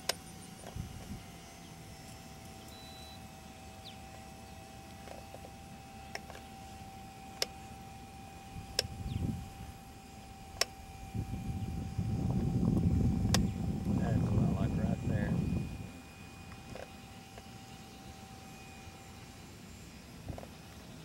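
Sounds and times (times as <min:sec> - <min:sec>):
model airplane motors whining: 0:00.0 - 0:21.0
wind rumble on microphone: 0:00.6 - 0:01.4, 0:08.5 - 0:09.8, 0:10.4 - 0:16.0.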